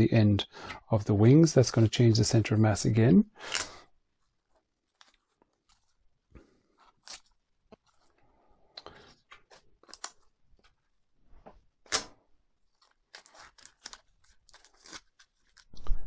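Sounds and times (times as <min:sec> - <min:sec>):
tape ripping and crackling: 0:04.8 - 0:06.0, 0:06.9 - 0:08.0, 0:09.5 - 0:10.7, 0:11.8 - 0:15.8.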